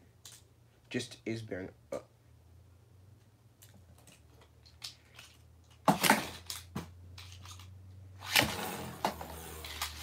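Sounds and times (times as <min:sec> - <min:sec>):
spinning top launch rasp: 0:08.2 - 0:10.0
spinning top whir: 0:08.2 - 0:10.0.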